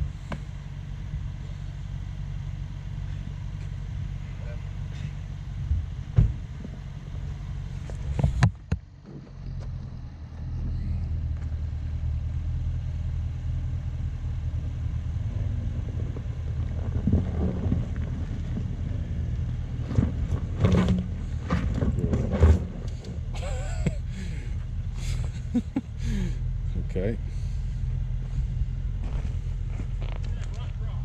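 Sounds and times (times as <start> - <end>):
deep engine drone: 0.0 - 31.0
stones crunching under tyres: 16.0 - 23.2, 28.0 - 30.9.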